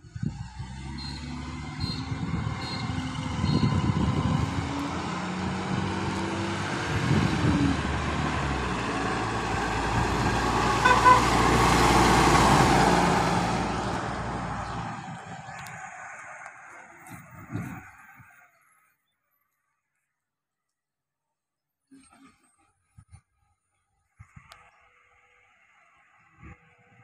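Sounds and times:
truck diesel engine passing: 0.0s - 17.9s
truck horn toot: 1.0s - 3.9s, 10.8s - 11.6s.

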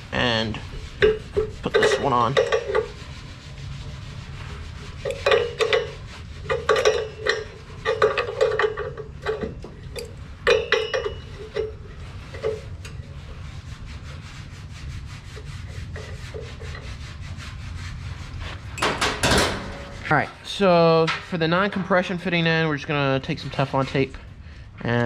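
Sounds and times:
metal parts clicking and rattling: 5.1s - 11.8s.

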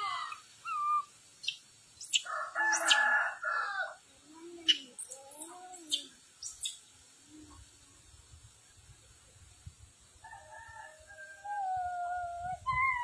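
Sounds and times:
birds calling: 0.3s - 3.1s, 4.6s - 6.8s.

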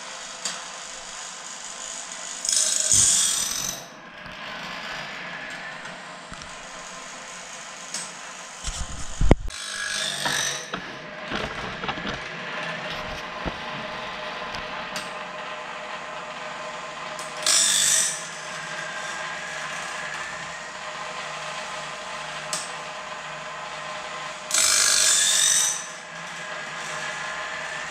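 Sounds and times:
grinding wheel on blade: 0.1s - 27.9s
motor hum: 8.6s - 16.1s.

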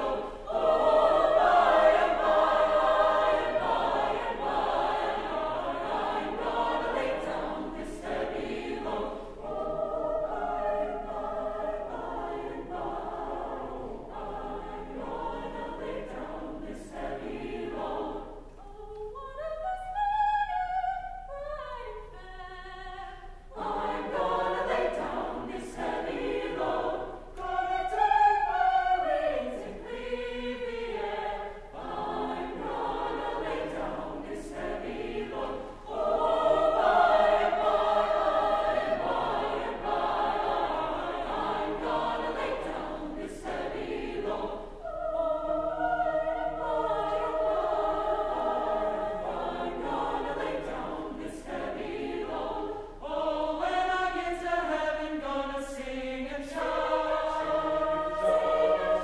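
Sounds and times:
mixed choir singing: 0.0s - 59.0s.

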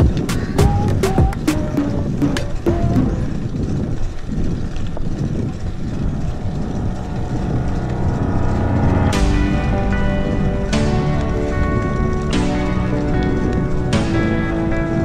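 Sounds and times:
bike tyres rumbling on concrete: 0.0s - 15.0s
wind on microphone: 0.0s - 15.0s
music with struck chord: 8.7s - 15.0s.

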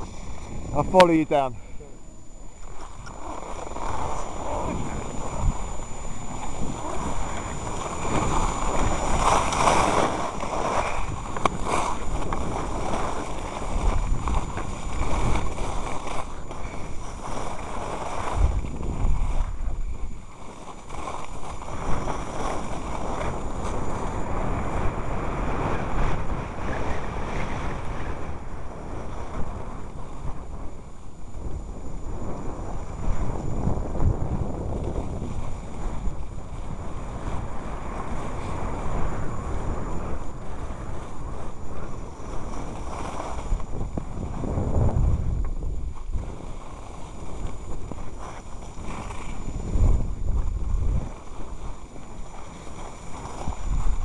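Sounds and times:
skis sliding over snow: 0.0s - 54.0s
wind buffeting microphone: 0.0s - 54.0s.

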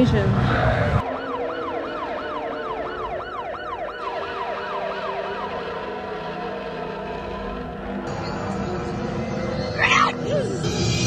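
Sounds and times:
yelping siren: 0.7s - 8.1s, 9.4s - 10.6s.

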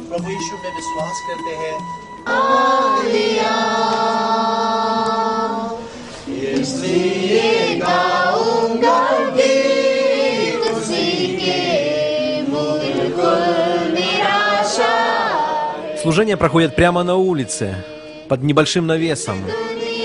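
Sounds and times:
congregation singing a hymn: 2.2s - 18.4s, 19.2s - 20.0s.

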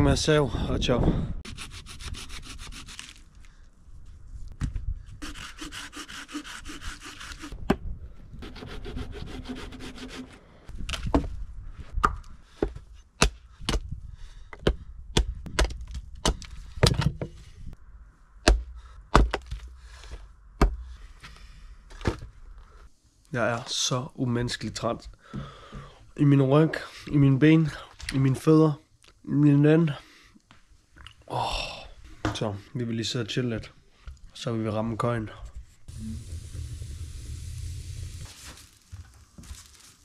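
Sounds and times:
hand saw rasping through log: 1.4s - 3.2s, 5.2s - 7.6s, 8.4s - 10.4s
axe chopping firewood on block: 12.0s - 13.9s, 14.6s - 17.1s, 18.5s - 19.7s, 20.6s - 20.9s.

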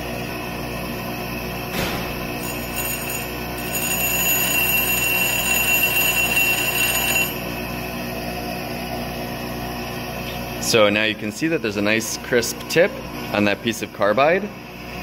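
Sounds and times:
high-pitched grinding whine: 0.0s - 15.0s
bench grinder motor running: 2.4s - 10.2s.

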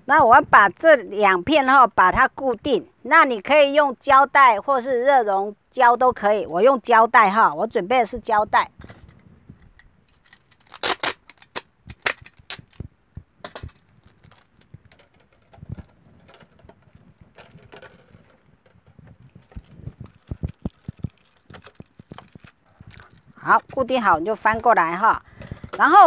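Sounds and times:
plastic bottle crackling: 8.8s - 26.0s
adhesive tape being pressed: 10.1s - 12.8s, 13.9s - 14.7s.

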